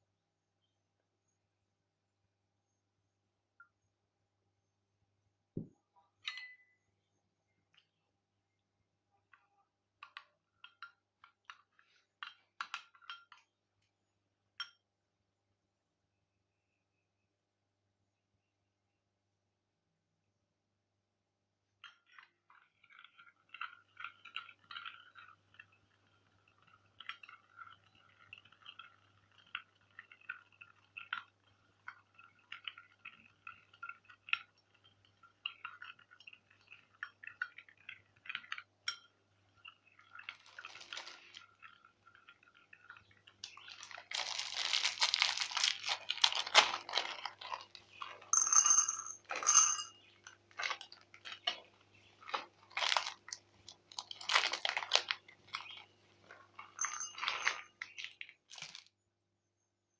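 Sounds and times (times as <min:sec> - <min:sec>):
ringing glass clinks: 0:06.2 - 0:06.8, 0:48.3 - 0:50.0, 0:56.8 - 0:57.7
crunching rustle: 0:43.5 - 0:48.2, 0:50.5 - 0:58.9
spoon scraping glass bowl: 0:55.6 - 0:57.9.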